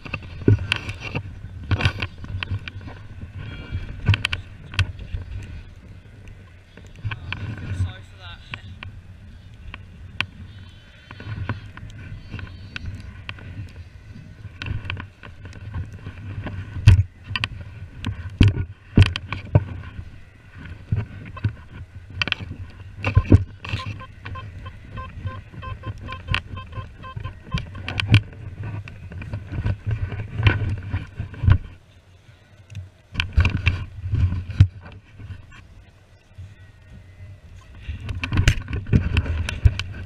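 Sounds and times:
low wind rumble: 0.0s - 40.0s
faint high steady tones: 23.1s - 28.0s.

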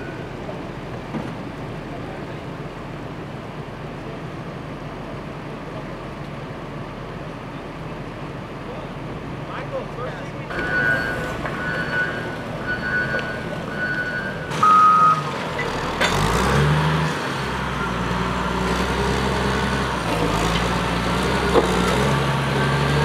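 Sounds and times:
diesel engine running: 0.0s - 23.0s
backup alarm beeping: 10.5s - 15.3s.

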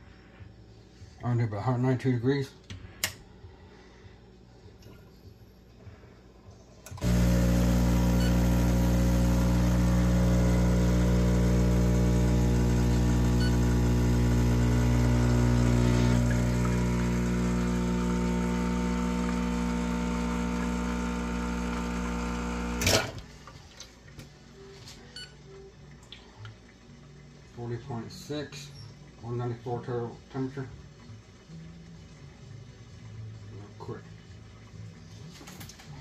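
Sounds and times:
espresso machine pump humming: 6.9s - 23.3s
pump shutting off burst: 6.9s - 23.3s
faint drips into cup: 25.9s - 27.1s.

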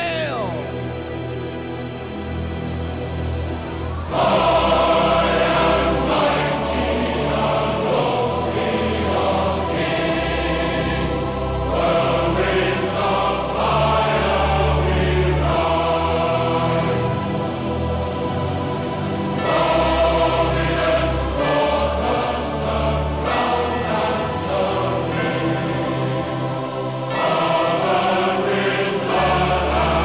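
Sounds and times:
choir singing with instrumental backing: 0.0s - 30.0s.

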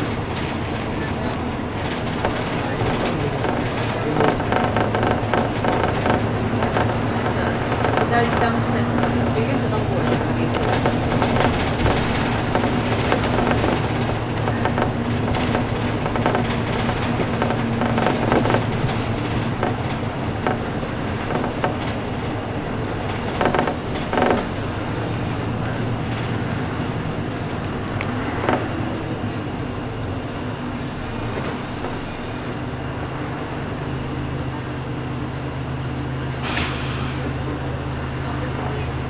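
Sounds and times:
short rattles: 0.0s - 27.6s
bus engine running: 0.0s - 39.0s
road noise: 0.0s - 39.0s.

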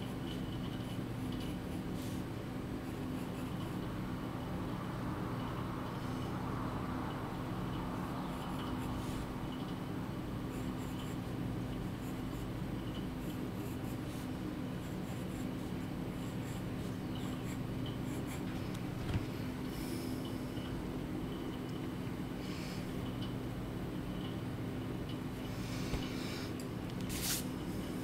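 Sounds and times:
steady low hum: 0.0s - 28.0s
pencil scratching on paper: 13.2s - 18.5s.

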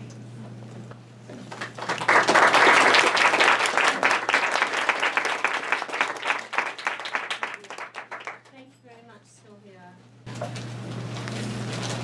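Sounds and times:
audience applauding: 1.5s - 8.5s.

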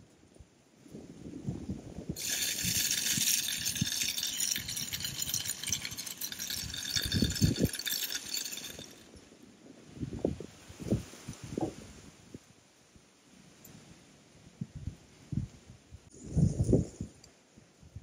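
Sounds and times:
feed kernels rattling off spinner: 2.2s - 9.1s.

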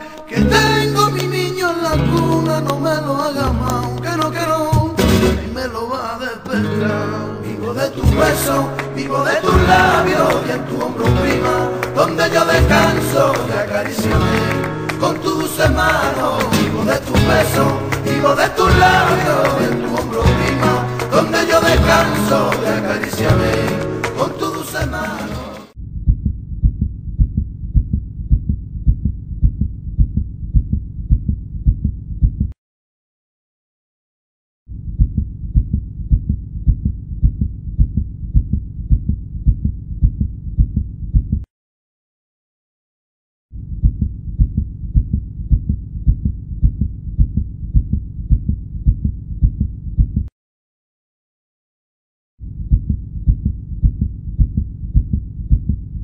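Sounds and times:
muffled heartbeat thumps: 25.8s - 32.6s, 34.7s - 41.5s, 43.6s - 50.3s, 52.4s - 56.0s.

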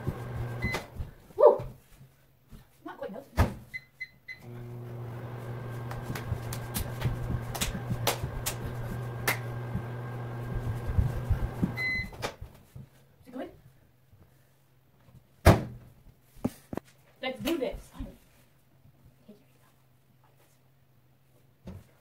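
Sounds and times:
microwave humming: 0.0s - 1.0s, 4.4s - 12.2s
microwave beep: 0.4s - 0.9s, 3.8s - 4.8s, 11.7s - 12.2s.

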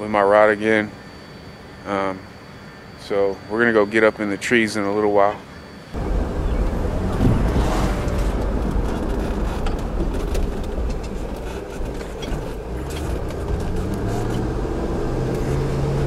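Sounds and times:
car engine and road noise: 5.9s - 16.0s.

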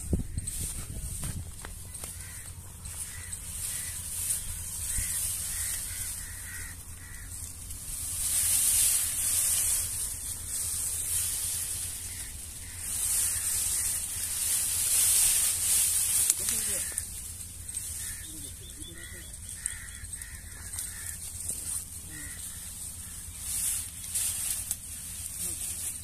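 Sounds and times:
dry grass rustling and swishing: 0.0s - 26.0s.

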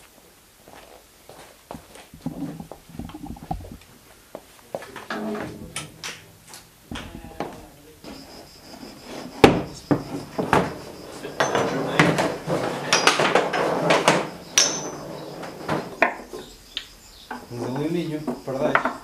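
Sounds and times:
foosball knocks and clacks: 2.2s - 3.8s, 11.4s - 14.9s.

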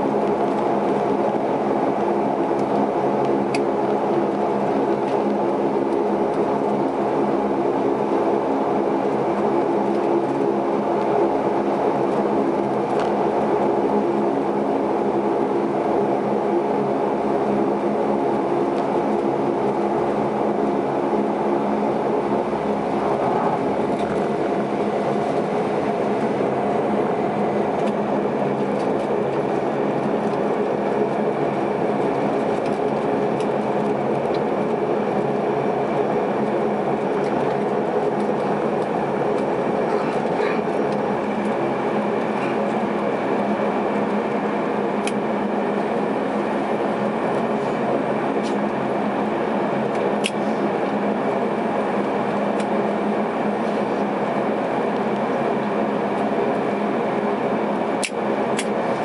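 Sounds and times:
turboprop cabin hum: 0.0s - 59.0s.

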